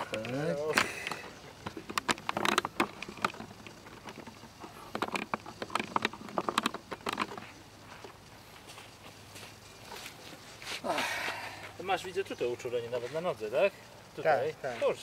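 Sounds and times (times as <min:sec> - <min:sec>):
footsteps on gravel: 0:07.4 - 0:11.0.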